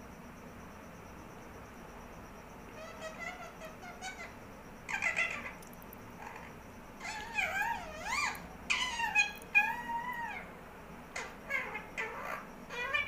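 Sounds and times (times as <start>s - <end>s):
parakeet calling: 2.7s - 13.0s.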